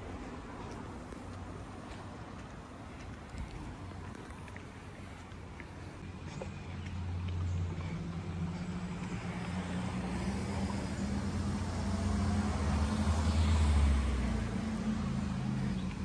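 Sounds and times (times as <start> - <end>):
car passing by: 6.4 - 16.0.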